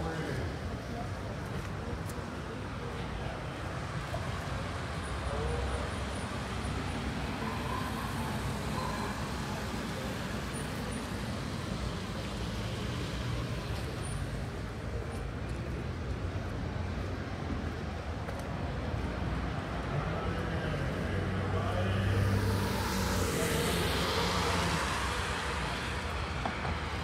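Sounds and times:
city traffic rumble: 0.0 - 27.0.

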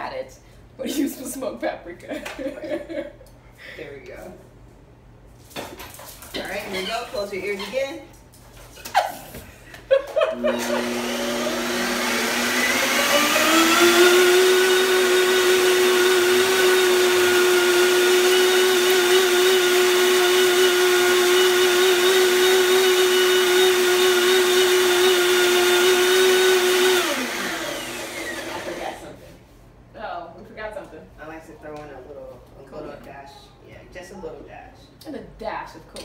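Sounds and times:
blender motor whining: 10.3 - 29.1.

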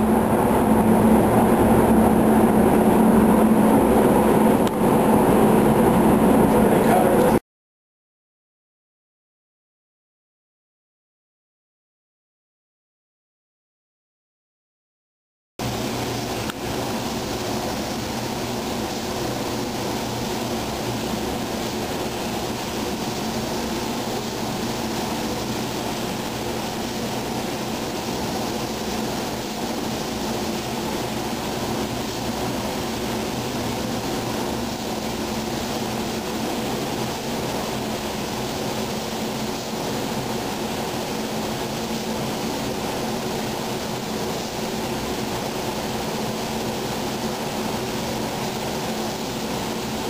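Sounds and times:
low hum: 0.0 - 7.4
ventilation rushing drone: 0.0 - 7.4, 15.6 - 50.0
spray gun hissing: 15.6 - 50.0.

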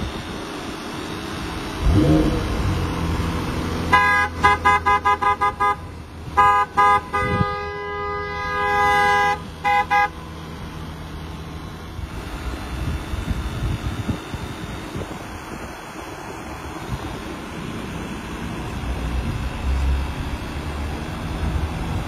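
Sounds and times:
two-tone car horn toots: 3.9 - 10.2.

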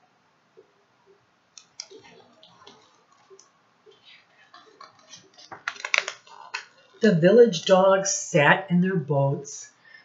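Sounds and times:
picture book being handled: 1.7 - 7.0.

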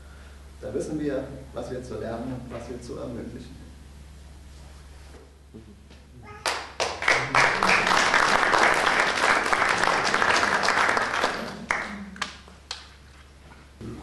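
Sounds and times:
audience applauding: 6.4 - 12.5.

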